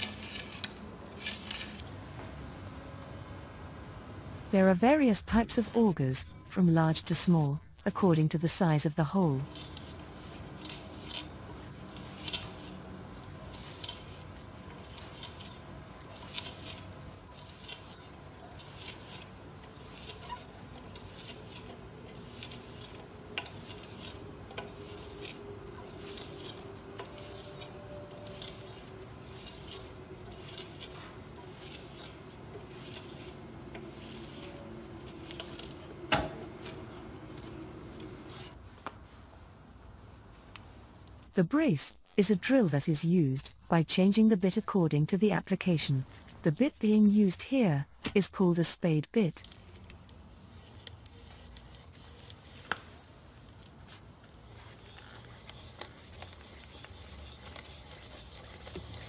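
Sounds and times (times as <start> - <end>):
auger scraping into wood: 0.0 - 2.0, 9.4 - 38.6, 50.5 - 59.0.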